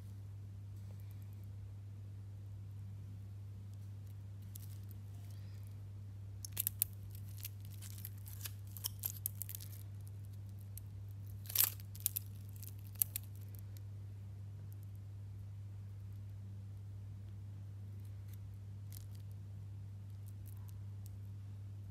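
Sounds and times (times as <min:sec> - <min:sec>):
low steady hum: 0:00.0 - 0:21.9
plastic film peeling crackles: 0:04.4 - 0:05.4, 0:06.4 - 0:13.6.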